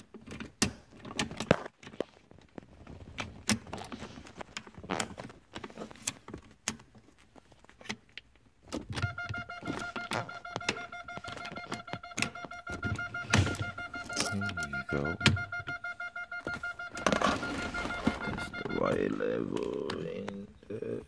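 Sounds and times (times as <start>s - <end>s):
steady electronic tone: 9.0s - 19.5s.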